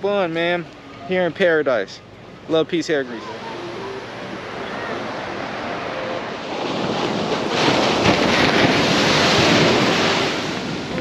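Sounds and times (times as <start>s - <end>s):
ocean surf breaking: 2.2s - 11.0s
wind buffeting microphone: 5.0s - 11.0s.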